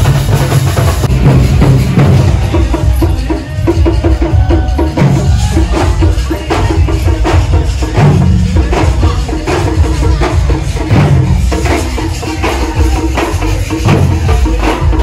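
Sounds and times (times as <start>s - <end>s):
music with fast rhythmic drumming: 0.0s - 15.0s.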